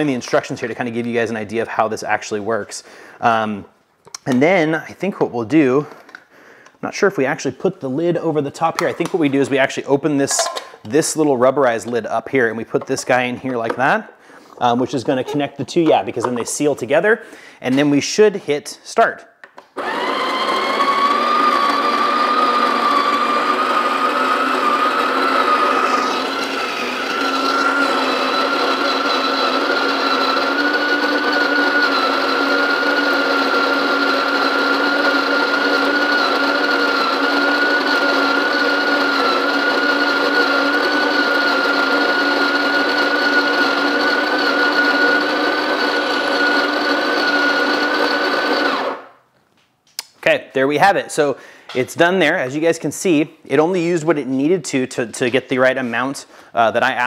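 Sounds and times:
coffee grinder grinding beans: 0:19.8 - 0:49.1.

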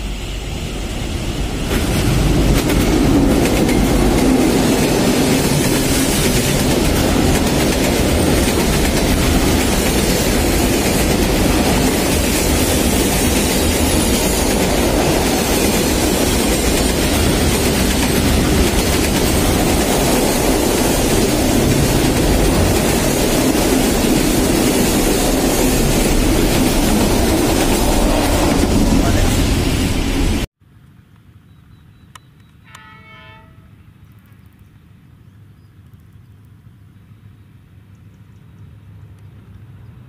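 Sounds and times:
freight train wheels rumbling: 0:00.0 - 0:30.5.

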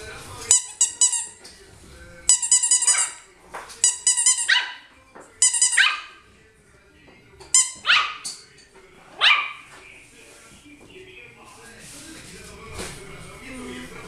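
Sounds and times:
squeaky toy ball squeaking: 0:00.5 - 0:01.4, 0:02.3 - 0:03.2, 0:03.8 - 0:06.1, 0:07.5 - 0:08.3
puppy yapping: 0:04.3 - 0:04.9, 0:05.6 - 0:06.2, 0:07.8 - 0:08.3, 0:09.2 - 0:09.7.

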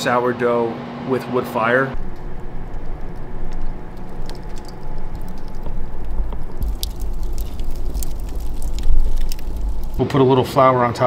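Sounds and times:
fire low rumble: 0:01.9 - 0:10.1
wood fire crackling and popping: 0:02.0 - 0:10.0.

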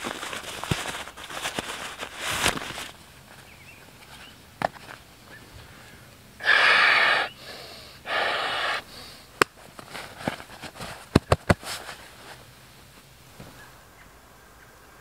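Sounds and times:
breath blown into pillow: 0:06.4 - 0:09.2.

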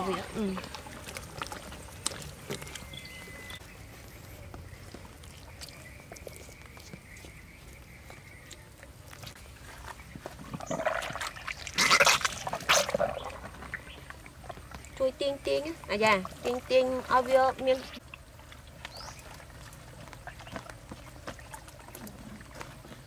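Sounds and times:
water gushing and splashing: 0:10.4 - 0:14.8.

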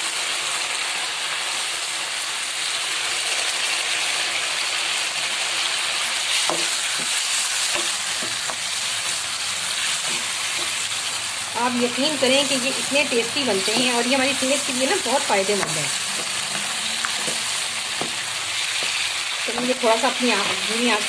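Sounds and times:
fish sizzling in a frying pan: 0:00.0 - 0:21.0.

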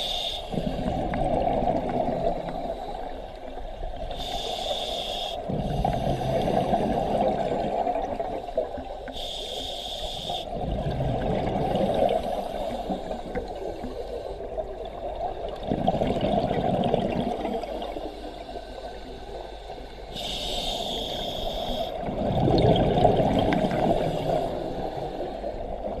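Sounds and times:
regulator hissing inhale: 0:00.0 - 0:00.8, 0:04.0 - 0:06.8, 0:09.0 - 0:10.5, 0:12.0 - 0:14.6, 0:17.9 - 0:22.1, 0:23.9 - 0:25.7
exhaust bubbles gushing: 0:10.6 - 0:12.2, 0:15.5 - 0:17.8, 0:22.0 - 0:24.4.

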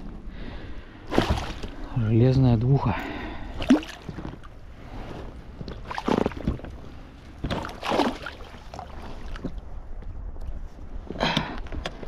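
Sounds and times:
wind and water wash: 0:00.0 - 0:12.0
oars swishing through water: 0:01.0 - 0:02.0, 0:03.4 - 0:12.0.

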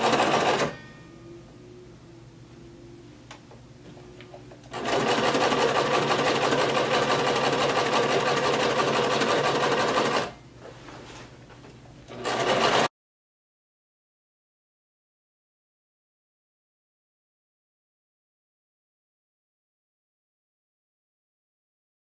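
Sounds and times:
sewing machine stitching: 0:00.0 - 0:00.8, 0:04.7 - 0:10.4, 0:12.1 - 0:12.9.

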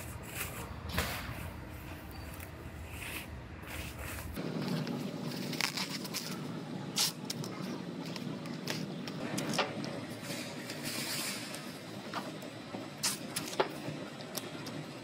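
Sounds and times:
plastic film rustling: 0:02.9 - 0:09.2.

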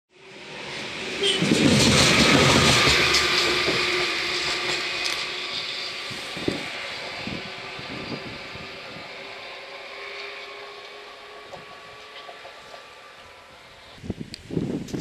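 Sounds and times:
train wheels rumbling on rails: 0:00.3 - 0:15.0.

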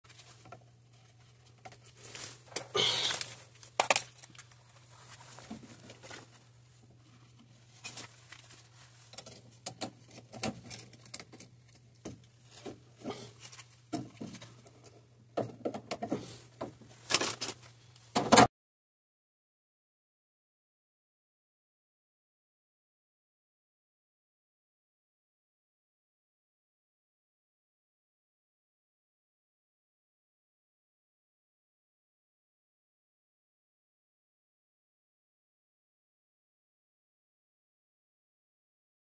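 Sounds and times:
hands handling wires: 0:00.1 - 0:18.2.

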